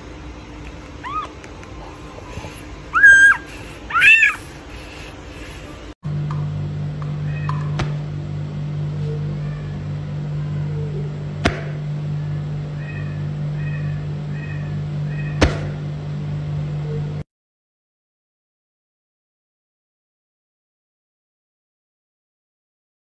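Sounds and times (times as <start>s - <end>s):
low electrical hum: 0.0s - 17.2s
faint high chirps: 2.4s - 5.7s.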